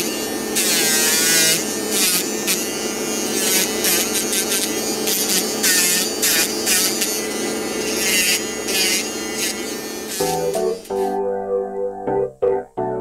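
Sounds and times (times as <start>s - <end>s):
electric nail file motor hum: 0.0s - 11.1s
nail file rasping nail: 3.4s - 7.2s
keyboard music: 10.2s - 13.0s.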